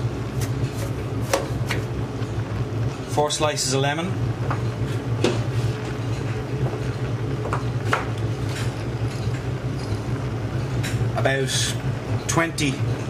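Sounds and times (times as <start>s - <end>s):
low kitchen hum: 0.0s - 13.0s.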